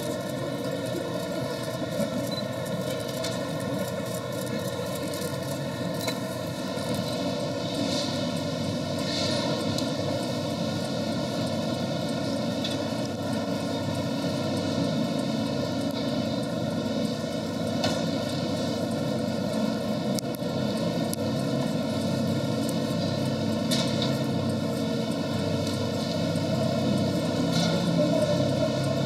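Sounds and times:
busy exhibition hall din: 0.0 - 12.5, 25.2 - 29.0.

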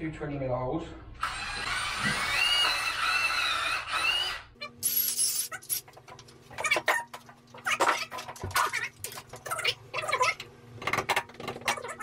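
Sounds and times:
cordless drill whirring: 1.2 - 4.5.

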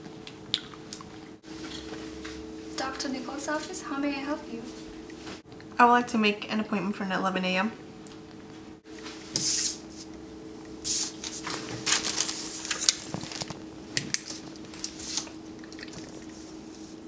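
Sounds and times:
steady low hum: 0.0 - 17.0
hands rustling at a desk: 10.9 - 13.6.

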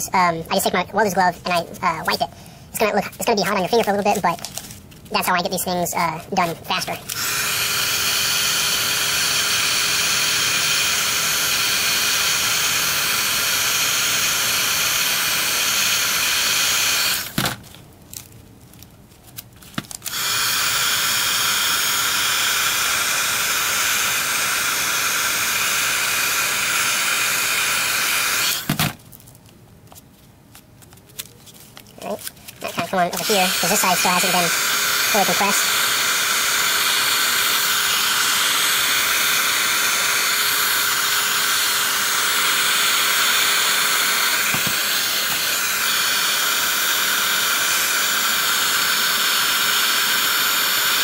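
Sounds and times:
heat gun blowing: 6.1 - 17.6, 20.0 - 29.0, 32.6 - 51.0.

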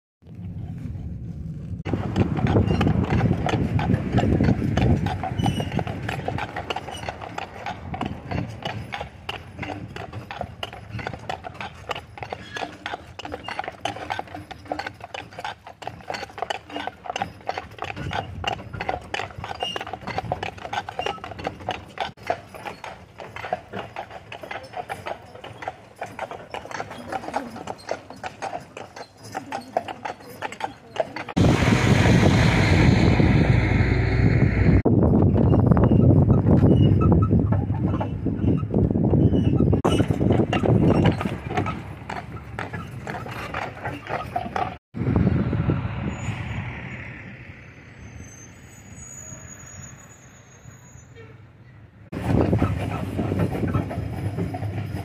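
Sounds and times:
hooves clip-clopping on asphalt: 0.2 - 31.4, 35.5 - 44.8, 52.1 - 55.0
low rumble: 31.4 - 35.8, 45.0 - 47.7.

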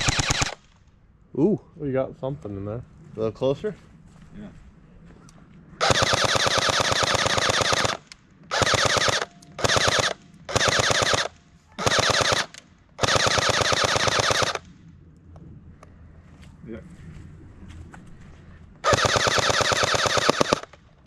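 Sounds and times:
airsoft gun automatic fire: 0.0 - 0.7, 5.8 - 14.7, 18.8 - 20.8.

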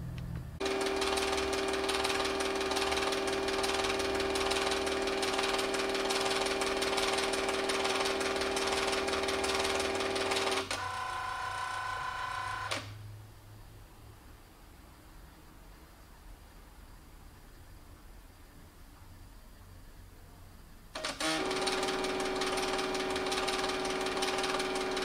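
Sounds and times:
film scanner motor whirring: 0.6 - 12.9, 21.0 - 25.0.

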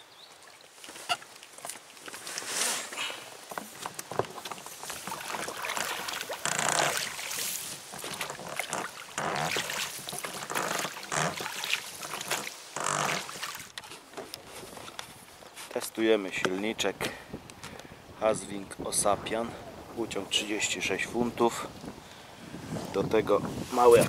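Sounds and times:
oars splashing water: 0.0 - 15.8.

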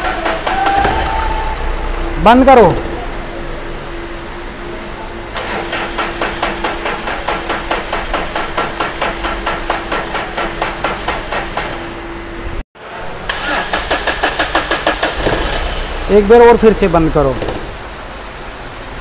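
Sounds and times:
starter motor cranking diesel engine: 5.3 - 8.1, 13.2 - 17.4.

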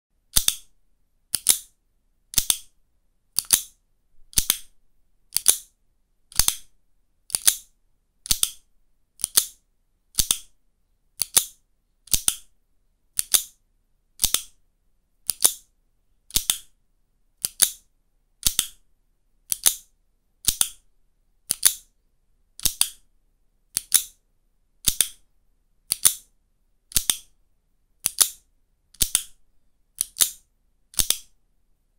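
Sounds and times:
plastic slider clicking: 1.3 - 1.7, 3.4 - 3.7, 5.3 - 5.7, 9.2 - 9.6, 13.2 - 13.5, 19.5 - 19.8, 21.5 - 21.8, 25.9 - 26.2, 30.0 - 31.2.

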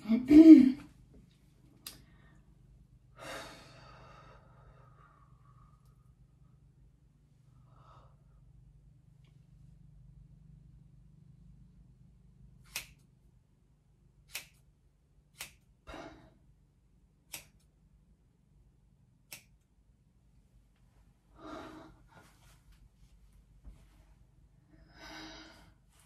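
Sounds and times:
scissors snipping hair: 12.6 - 13.2, 14.2 - 14.7, 15.3 - 15.8, 17.2 - 17.8, 19.2 - 19.7.

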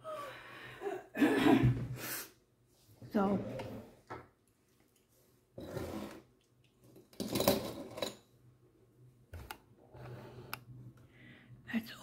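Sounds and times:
objects scraping on wooden table: 3.1 - 4.1, 5.6 - 6.3, 9.9 - 10.6.

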